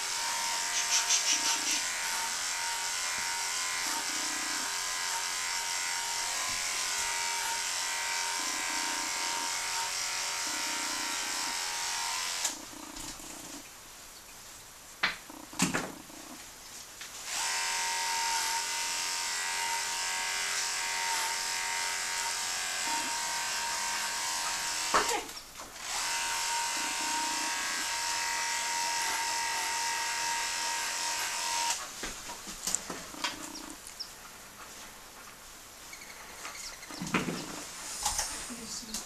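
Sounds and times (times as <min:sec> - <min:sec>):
electric clippers humming: 0:00.0 - 0:12.6, 0:17.2 - 0:31.8.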